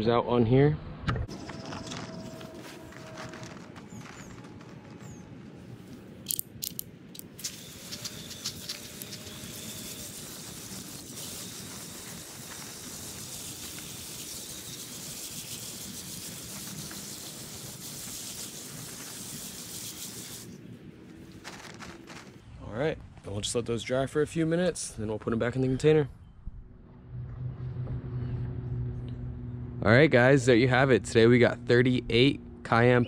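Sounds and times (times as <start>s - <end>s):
hose nozzle spraying water: 6.3s - 20.6s.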